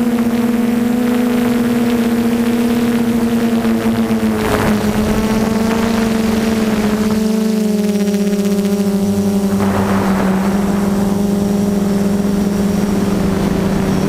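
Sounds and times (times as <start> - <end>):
drone motors humming: 0.0 - 14.0
wind noise rush: 3.8 - 7.3, 9.3 - 14.0.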